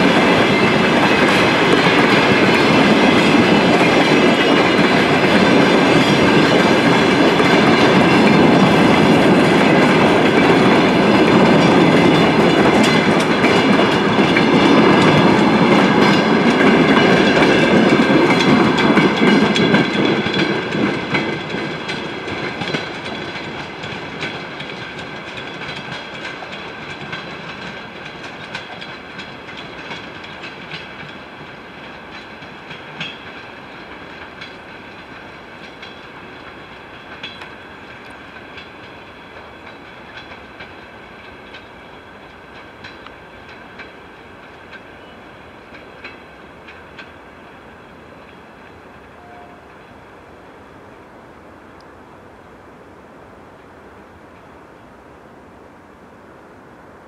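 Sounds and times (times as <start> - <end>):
train wheels clicking over rail joints: 0.0 - 50.1
thin high ringing of rails: 0.0 - 51.1.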